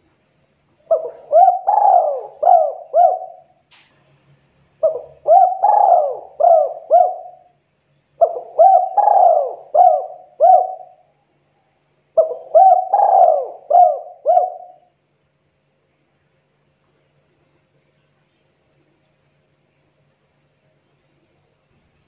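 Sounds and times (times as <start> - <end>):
dove cooing: 0.8 - 3.5, 4.8 - 7.5, 8.2 - 11.0, 12.2 - 14.9.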